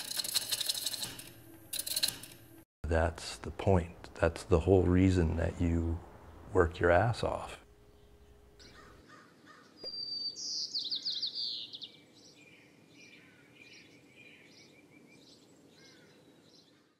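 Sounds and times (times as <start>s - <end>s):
soft short bird chirps: 9.8s - 11.9s.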